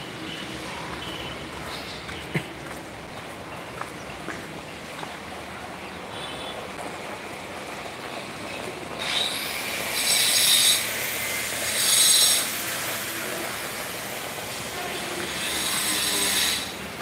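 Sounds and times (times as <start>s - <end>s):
heavy rain: 12.7s - 15.5s
high-pitched squeals: 14.9s - 16.8s.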